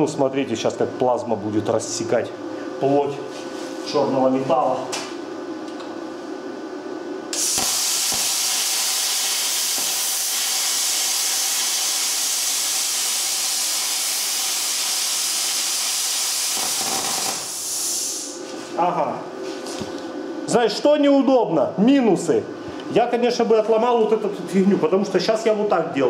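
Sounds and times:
plasma cutter hissing: 7.3 - 18.4.

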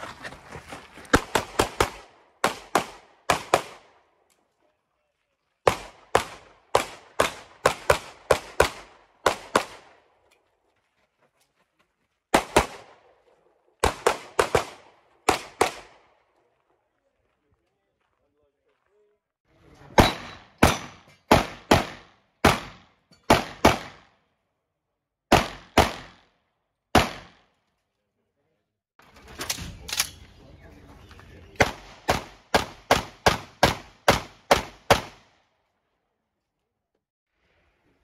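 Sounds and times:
pistol shots with echo: 1.1 - 4.0, 5.6 - 10.1, 13.8 - 16.2, 20.0 - 24.2, 25.3 - 26.3, 26.9 - 27.5, 31.6 - 35.3.

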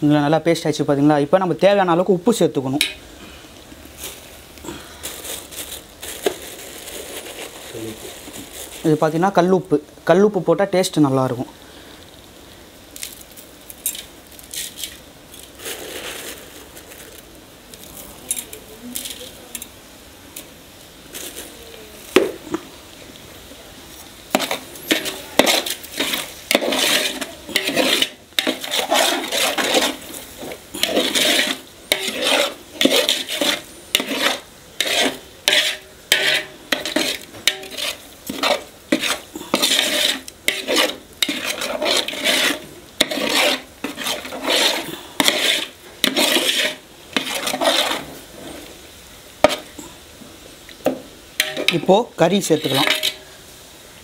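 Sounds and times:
metal ladle scraping a pot: 24.3 - 48.7, 49.4 - 49.8, 51.4 - 53.3.

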